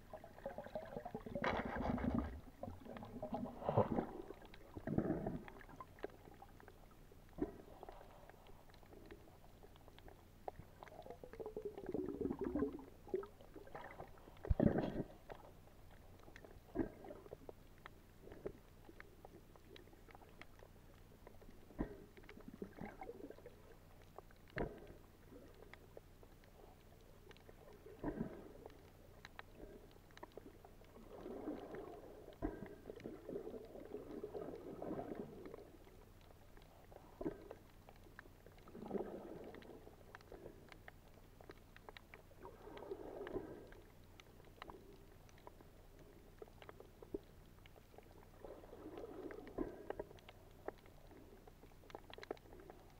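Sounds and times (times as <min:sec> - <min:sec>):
muffled underwater gurgling: 0:00.0 - 0:15.6.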